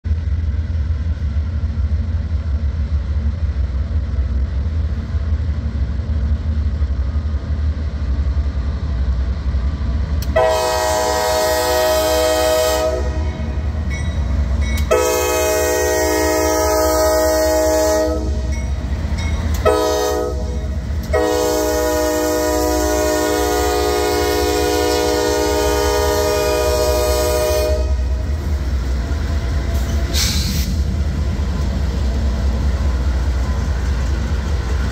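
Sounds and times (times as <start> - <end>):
diesel locomotives rumbling: 0.0 - 34.9
locomotive air horn blasts: 10.3 - 13.6, 14.9 - 18.5, 19.6 - 28.3.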